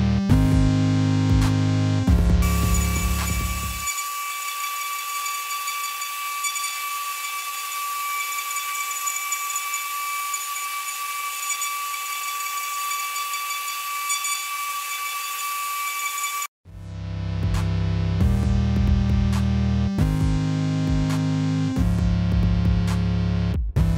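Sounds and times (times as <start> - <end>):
cutter hissing on metal: 2.4 - 16.5
engraving spindle whine: 2.4 - 16.5.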